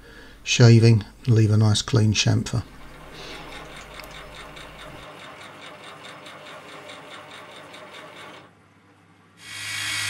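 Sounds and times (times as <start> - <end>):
mini lathe running: 2.7 - 8.5.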